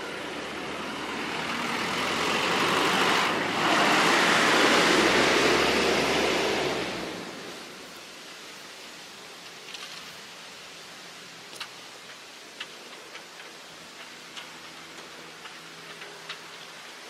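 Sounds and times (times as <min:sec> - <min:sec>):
vehicle driving past: 0:00.0 - 0:07.7.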